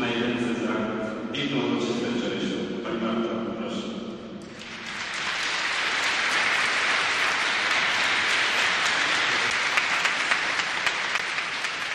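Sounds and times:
audience applauding: 4.5 - 11.9
single sharp claps: 4.5 - 11.9.

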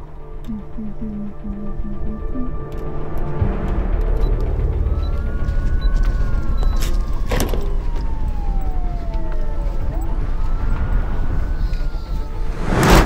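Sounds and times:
siren wailing: 0.5 - 2.7, 4.5 - 13.0
low rumble: 12.3 - 13.0.

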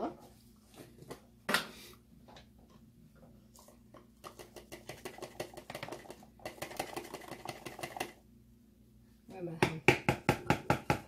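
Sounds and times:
grated cheese pattering into cup: 4.2 - 8.2.

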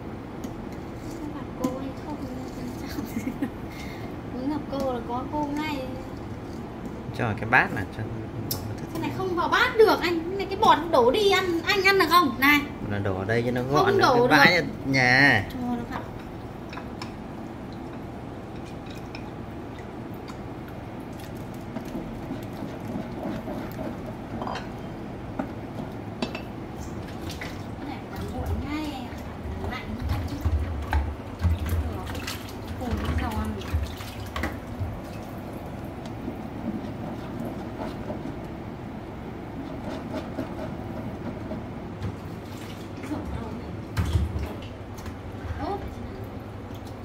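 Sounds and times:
steady low hum: 0.0 - 47.0
utensils stirring in a pot: 0.6 - 3.2
pot of soup rumbling: 13.7 - 43.1.

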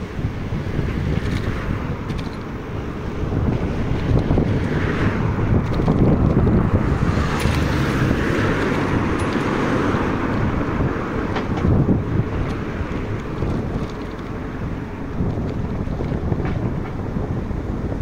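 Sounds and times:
street traffic: 0.0 - 18.0
wind rushing over microphone: 0.0 - 18.0.

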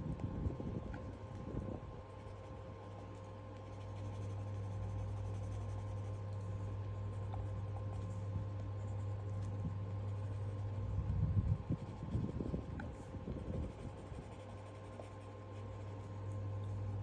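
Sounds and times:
low hum: 0.0 - 17.0
pencil scratching on paper: 2.2 - 10.8, 11.8 - 16.9.

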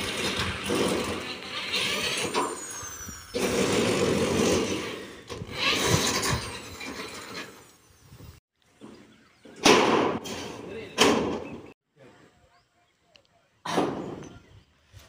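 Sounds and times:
electric drill driving screws: 0.0 - 7.5
outdoor noise: 0.0 - 15.0.

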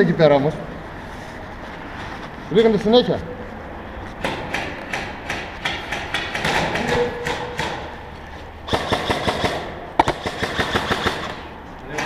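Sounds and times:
airsoft guns firing: 5.1 - 7.9, 8.7 - 11.5.

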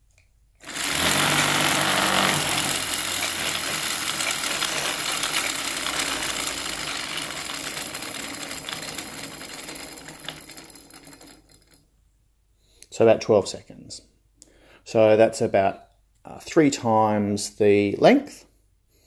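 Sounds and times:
whirring clatter of wooden gears: 0.6 - 11.8.

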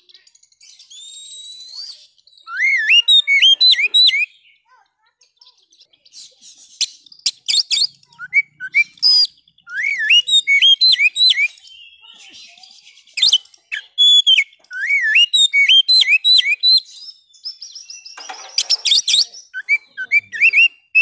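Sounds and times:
bird whistled song phrases: 0.0 - 4.8, 5.4 - 21.0
bird chips and scratchy notes: 17.4 - 21.0.

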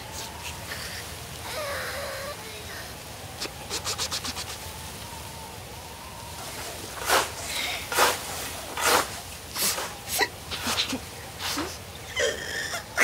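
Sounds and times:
scythe swishing through grass: 6.5 - 11.7.

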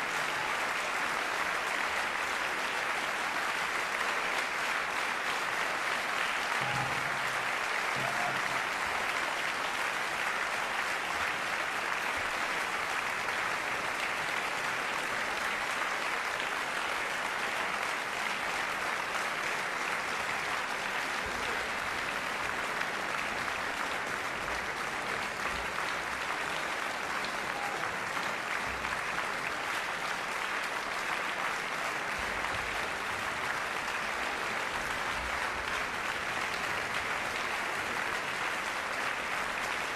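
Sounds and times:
audience applauding: 0.0 - 39.9.

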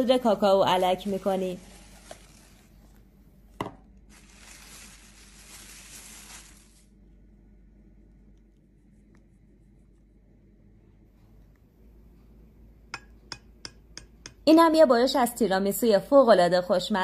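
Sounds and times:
cling film rustling: 0.7 - 2.9, 4.1 - 7.0.

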